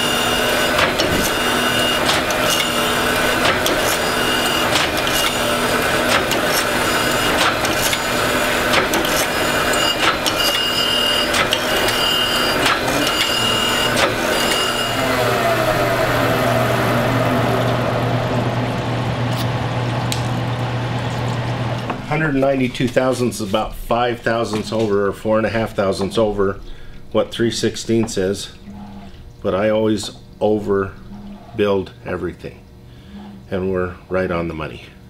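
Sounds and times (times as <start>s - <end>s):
grinder wheel grinding steel: 0.0s - 19.6s
machine whine falling in pitch: 9.4s - 29.8s
steady low hum: 11.3s - 35.0s.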